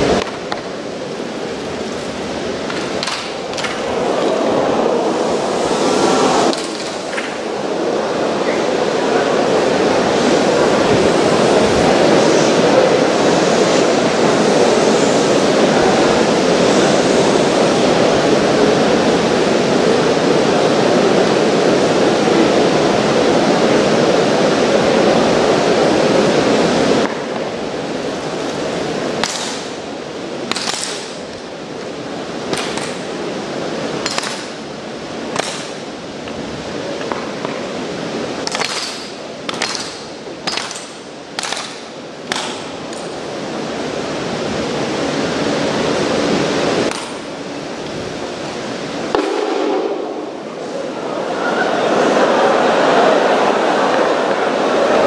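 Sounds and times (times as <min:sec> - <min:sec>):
loud rush of noise: 0:00.0 - 0:55.0
rifles being slapped: 0:02.7 - 0:03.8, 0:06.5 - 0:07.4, 0:29.2 - 0:29.7, 0:30.5 - 0:31.2, 0:32.5 - 0:33.1, 0:34.0 - 0:34.6, 0:35.3 - 0:35.8, 0:38.4 - 0:43.1, 0:46.9 - 0:47.3, 0:49.2 - 0:49.7.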